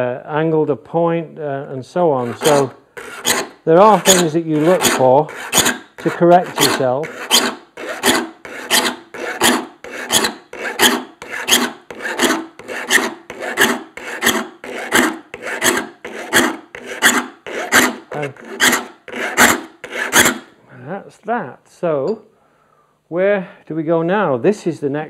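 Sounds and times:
file rasping on saw teeth: 2.2 - 20.5.

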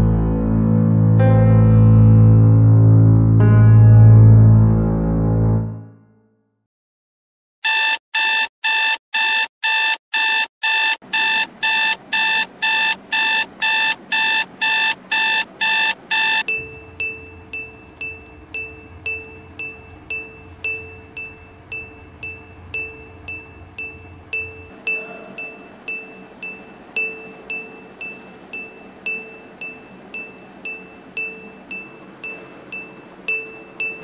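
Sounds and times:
alarm clock beeping: 7.6 - 24.8
soft ringing pings: 16.5 - 34.0.

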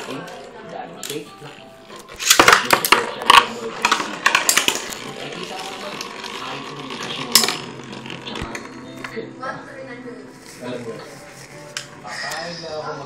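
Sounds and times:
spinning tops clattering: 2.2 - 8.8
spinning tops scraping whir: 3.6 - 8.8.

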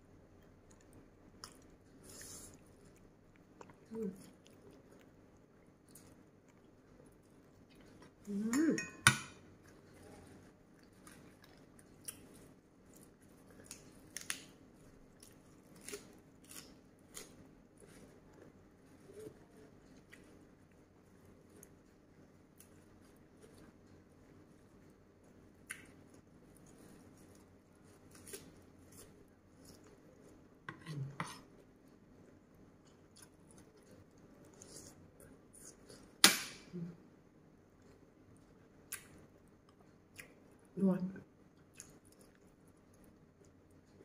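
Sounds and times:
chewing with wet mouth clicks: 0.3 - 8.2, 9.6 - 18.5, 32.2 - 36.1, 37.8 - 40.8, 41.5 - 44.0
spoon clinking on ceramic plate: 8.8 - 9.3.

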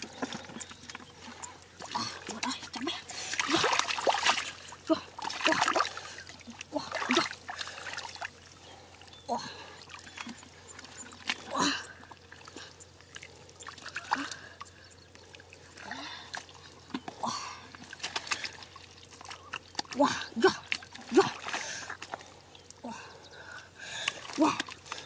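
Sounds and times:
wet slaps and squelches: 19.2 - 20.0.

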